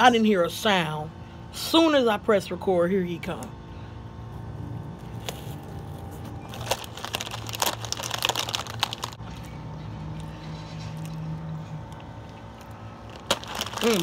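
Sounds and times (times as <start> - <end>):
chip bag crinkling: 5.2 - 9.5, 11.9 - 14.0
chips being crunched: 6.5 - 9.2, 13.0 - 14.0.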